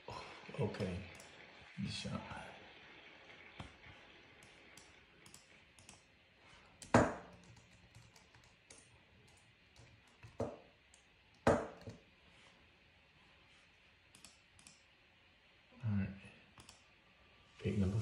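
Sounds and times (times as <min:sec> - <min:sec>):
laptop keyboard clicks and taps: 0:04.7 - 0:06.0, 0:06.8 - 0:12.0, 0:16.6 - 0:16.8.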